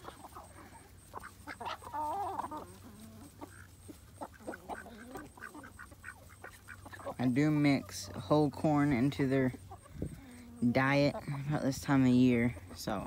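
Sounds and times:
chicken warbling call: 0:00.0 - 0:07.1
chickens clucking: 0:00.0 - 0:13.0.

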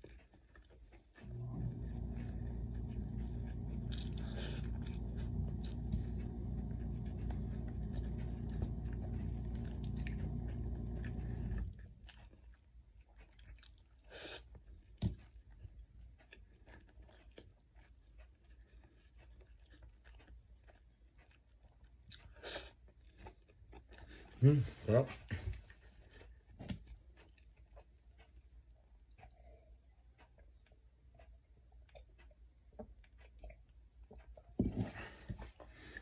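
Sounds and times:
person chewing with mouth clicks: 0:00.0 - 0:01.2, 0:02.0 - 0:24.8, 0:25.7 - 0:36.0
steady low hum: 0:01.2 - 0:12.4.

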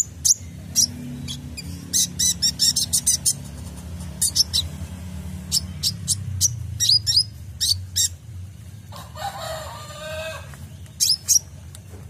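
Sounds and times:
bird singing high chirps: 0:00.0 - 0:03.5, 0:04.2 - 0:04.8, 0:05.4 - 0:08.2, 0:10.7 - 0:11.6
rooster crowing: 0:08.9 - 0:10.6.

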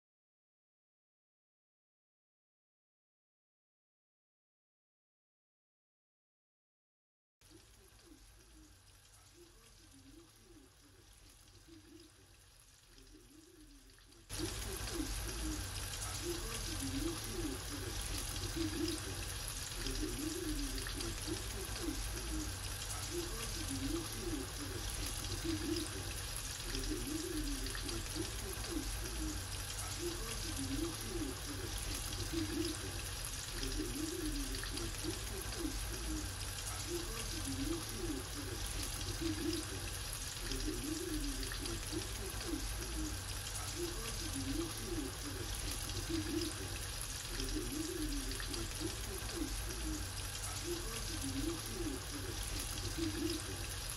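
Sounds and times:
squid deep-frying in oil: 0:07.4 - 0:53.9.

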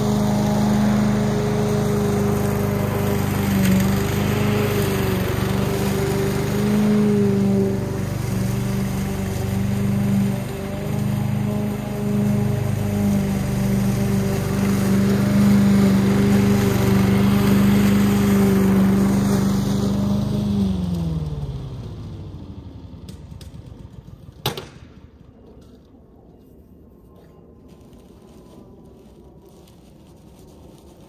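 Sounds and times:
lawn mower engine running: 0:00.0 - 0:24.5.

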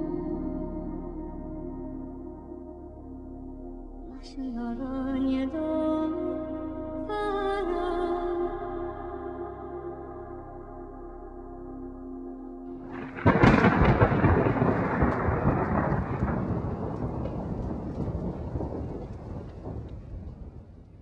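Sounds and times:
ambient music chord: 0:00.0 - 0:17.1
loud thunderclap rumbling: 0:12.9 - 0:21.0.

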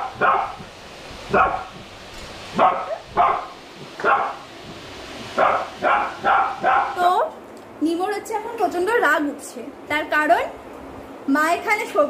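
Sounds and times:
puppy barking: 0:00.0 - 0:00.7, 0:01.3 - 0:01.8, 0:02.5 - 0:04.5, 0:05.4 - 0:07.1.

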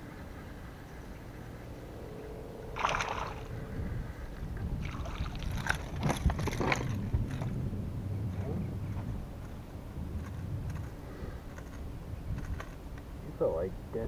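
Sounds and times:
fishing reel whirring: 0:01.6 - 0:04.4.

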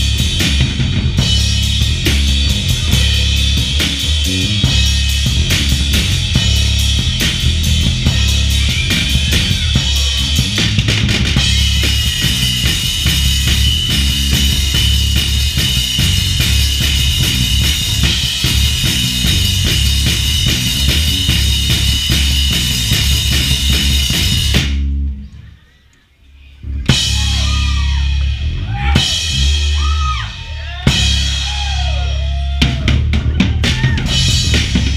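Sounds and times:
drum solo: 0:00.0 - 0:25.0, 0:26.9 - 0:34.9
crowd shouting and whooping: 0:08.0 - 0:14.9, 0:26.9 - 0:34.7.

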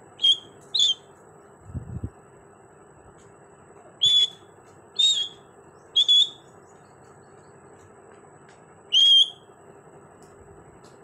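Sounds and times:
parakeet whistled calls: 0:00.2 - 0:01.1, 0:04.0 - 0:06.5, 0:08.9 - 0:09.5.

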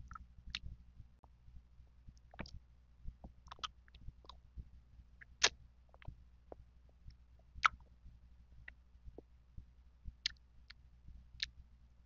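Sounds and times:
chewing with mouth clicks: 0:03.4 - 0:04.4.

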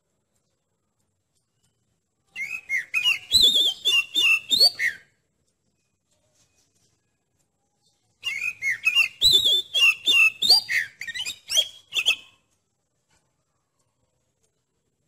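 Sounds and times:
bird singing whistled notes: 0:02.3 - 0:05.2, 0:07.9 - 0:12.5.

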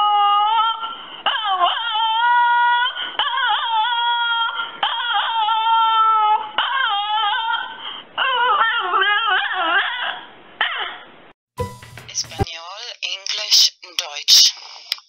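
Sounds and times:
small dog howling: 0:00.0 - 0:11.0.

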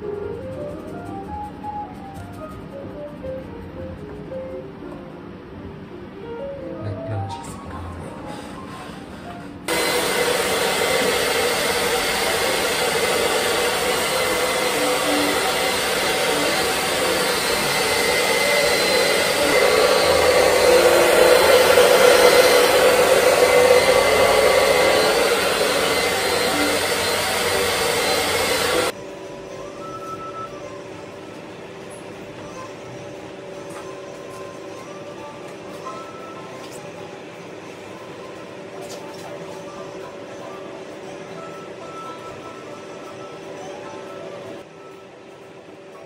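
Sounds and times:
hair dryer running: 0:09.7 - 0:29.0.

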